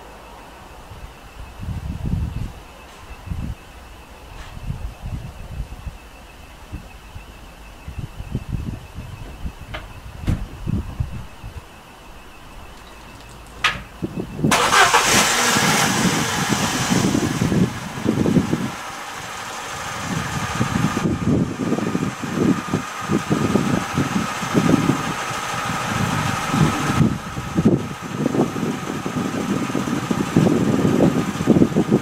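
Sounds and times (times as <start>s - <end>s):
faint steady whine: 0.0s - 15.1s
car engine idling roughly: 13.3s - 32.0s.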